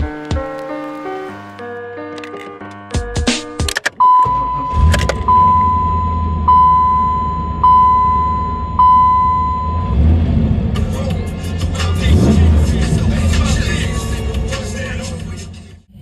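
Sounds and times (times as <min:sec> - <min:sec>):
dashboard warning chime: 0:04.0 - 0:10.0
car engine idling: 0:04.0 - 0:16.0.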